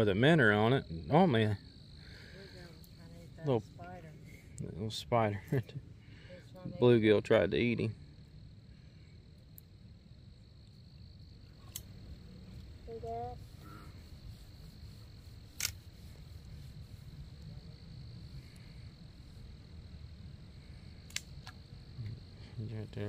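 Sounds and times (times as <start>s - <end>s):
high insect trill: 0.0s - 23.0s
sharp clicks: 15.6s - 15.8s, 21.0s - 22.2s.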